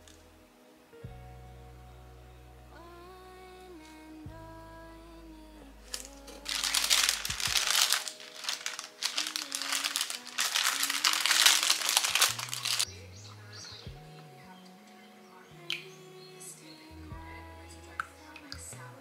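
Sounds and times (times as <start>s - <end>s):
soft background music: 0.0s - 19.0s
paper wrapper crinkling: 5.9s - 12.9s.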